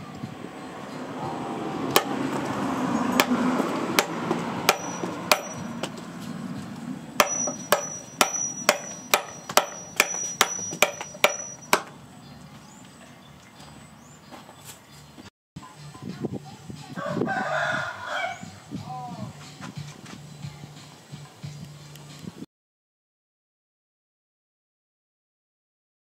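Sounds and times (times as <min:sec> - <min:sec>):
machete chopping wood: 0:01.9 - 0:02.4, 0:03.2 - 0:03.4, 0:04.0 - 0:06.0, 0:07.2 - 0:11.9.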